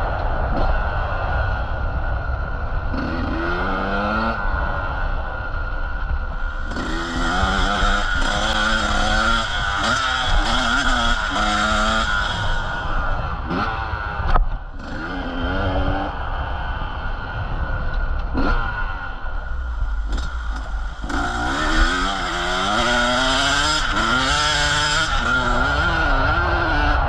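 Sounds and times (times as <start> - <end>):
motorcycle engine revving: 2.9 - 5.1, 6.3 - 16.2, 18.1 - 27.0.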